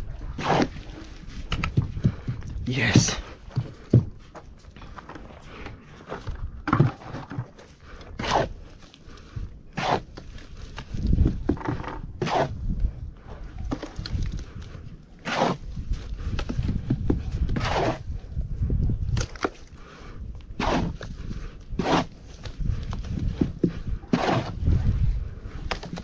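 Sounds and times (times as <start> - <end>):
shovel scraping wet mortar: 0.2 - 1.2, 6.0 - 12.7, 15.2 - 16.4, 17.4 - 18.2, 20.6 - 22.6, 23.4 - 24.8.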